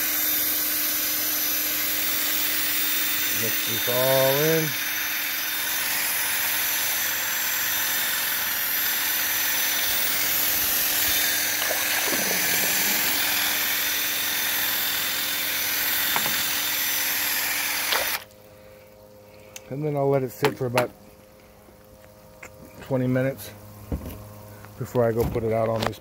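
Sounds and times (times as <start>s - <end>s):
electric drill whirring: 0.0s - 18.3s
churning water: 11.3s - 13.6s.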